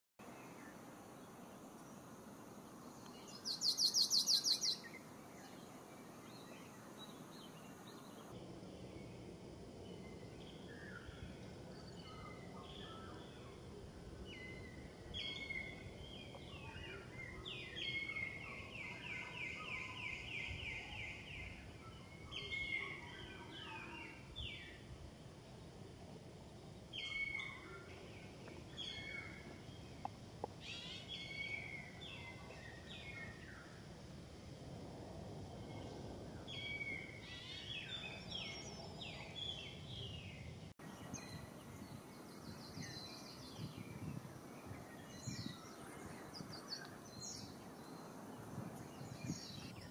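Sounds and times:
songbirds chirping and trilling: 0:00.2 - 0:09.2, 0:09.8 - 0:24.8, 0:35.8 - 0:49.9
steady background hiss: 0:00.2 - 0:49.9.

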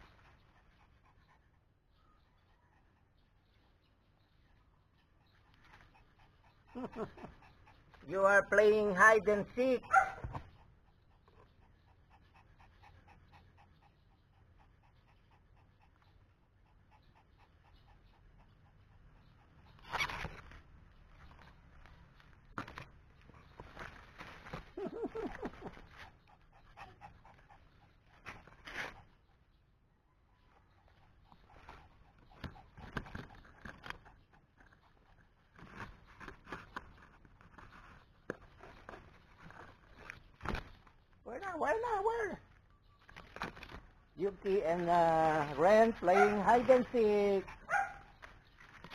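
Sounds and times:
dog panting quickly: 0:00.0 - 0:21.6, 0:23.2 - 0:42.5, 0:44.2 - 0:48.9
leaves and twigs rustling: 0:19.8 - 0:26.1, 0:32.4 - 0:48.9.

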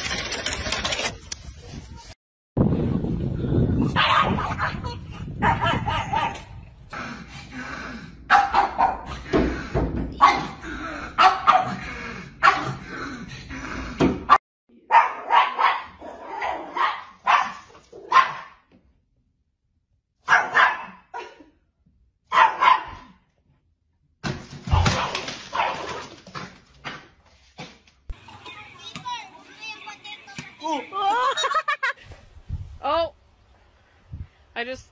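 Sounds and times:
dogs barking: 0:03.9 - 0:04.8, 0:05.4 - 0:06.5, 0:08.3 - 0:09.5, 0:10.2 - 0:10.6, 0:11.2 - 0:12.8, 0:14.9 - 0:18.6, 0:20.2 - 0:21.1, 0:22.3 - 0:23.1, 0:24.7 - 0:26.2.

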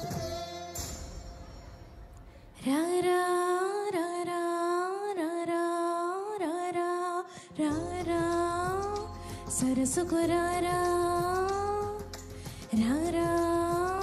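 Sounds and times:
breath: 0:02.2 - 0:02.6, 0:07.3 - 0:07.6, 0:09.2 - 0:09.5, 0:12.3 - 0:12.7
woman singing unaccompanied: 0:02.6 - 0:14.0.

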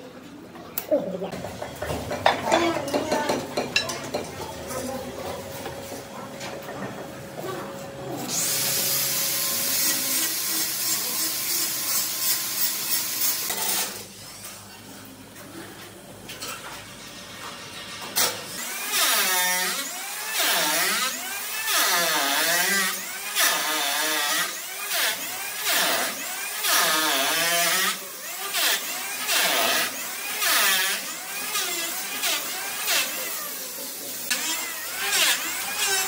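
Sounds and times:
power tool cutting wood: 0:08.2 - 0:14.0, 0:18.2 - 0:36.0.

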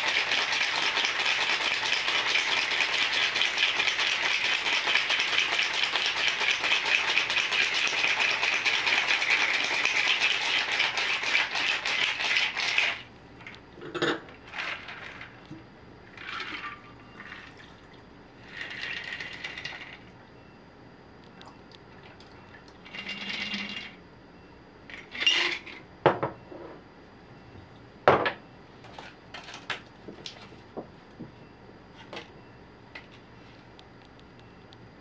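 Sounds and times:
ice rattling in cocktail shaker: 0:00.0 - 0:13.0, 0:18.5 - 0:20.0.

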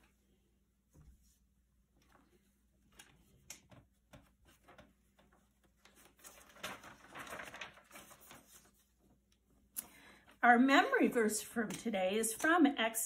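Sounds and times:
paper rustling and crinkling: 0:01.2 - 0:09.6.

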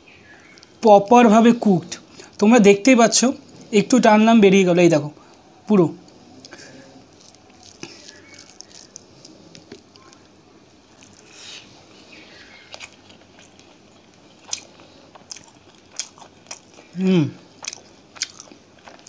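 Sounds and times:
chewing with lip smacks: 0:06.1 - 0:19.0.

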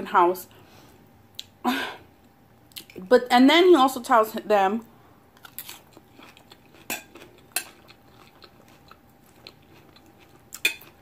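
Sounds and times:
quiet chewing: 0:05.4 - 0:11.0.

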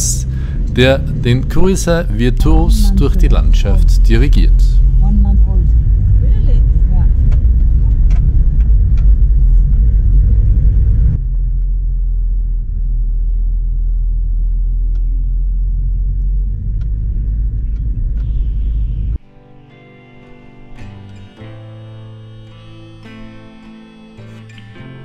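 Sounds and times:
acoustic guitar music: 0:00.0 - 0:06.7, 0:19.2 - 0:25.0
vehicle engine and tyres rumbling: 0:00.0 - 0:19.2.

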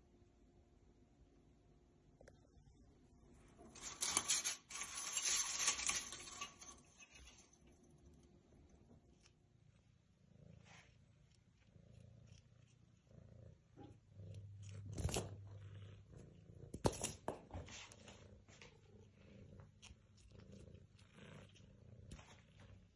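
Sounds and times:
cat purring: 0:07.5 - 0:22.9.

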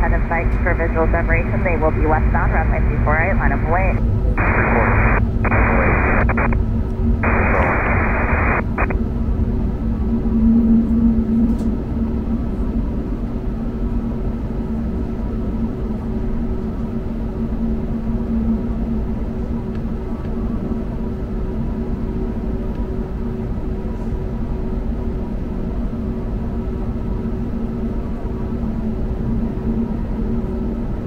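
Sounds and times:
air traffic control radio: 0:00.0 - 0:06.6, 0:07.2 - 0:08.9
airliner cabin engine and airflow noise: 0:00.0 - 0:31.0.

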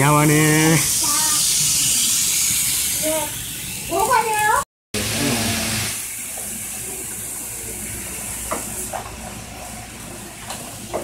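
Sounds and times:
model trains rushing hiss: 0:00.0 - 0:03.8.

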